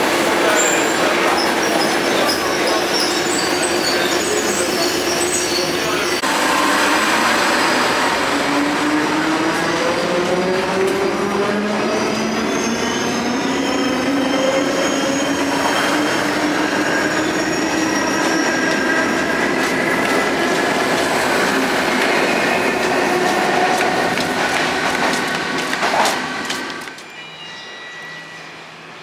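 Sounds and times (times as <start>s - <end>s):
metro train whine: 0.0s - 29.0s
running gear squealing: 0.5s - 6.2s, 12.4s - 19.3s
train clatter: 18.6s - 27.1s.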